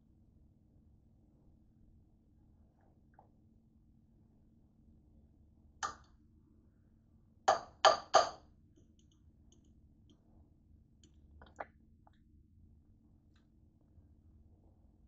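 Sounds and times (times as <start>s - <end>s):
fork tapping ceramic crock: 7.5s - 8.4s.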